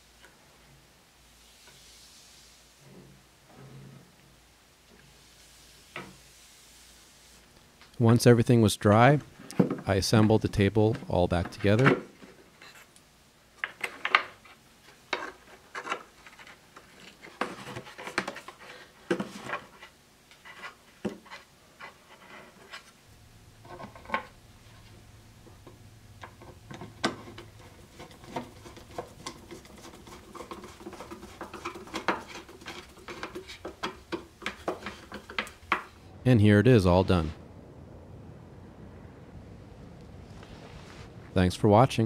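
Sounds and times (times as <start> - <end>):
wood rubbing: 23.6 - 36.1.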